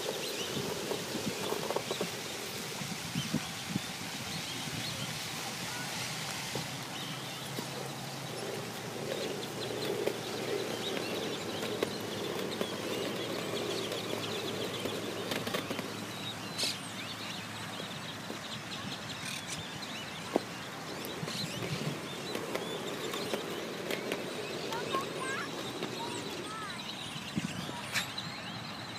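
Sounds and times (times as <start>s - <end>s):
birds chirping: 0.0s - 28.9s
steady background hiss: 0.0s - 28.9s.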